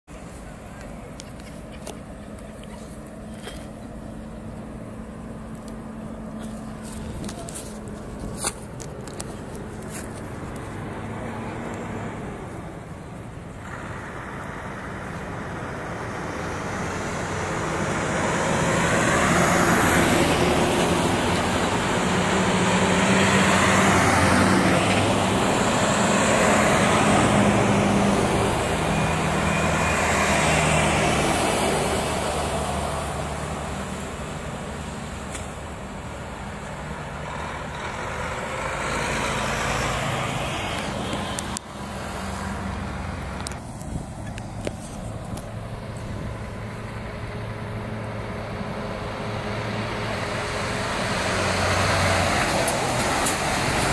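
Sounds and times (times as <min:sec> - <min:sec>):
truck diesel engine passing: 0:00.1 - 0:53.9.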